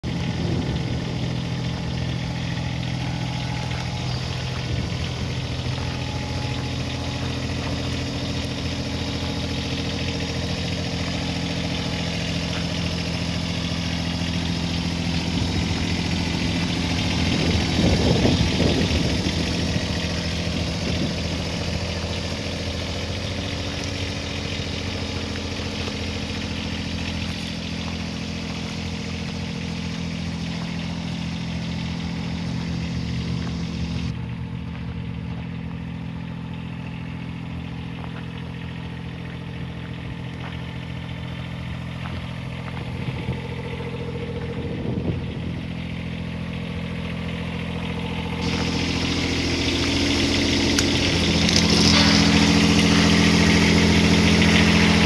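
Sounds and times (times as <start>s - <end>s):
excavator engine idling: 0.0s - 55.0s.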